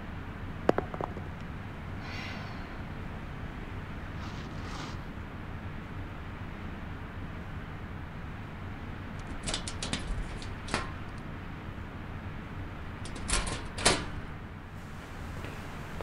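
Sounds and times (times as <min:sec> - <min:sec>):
metal cabinet door clicking open: 0:09.2 - 0:11.1, 0:13.0 - 0:14.2.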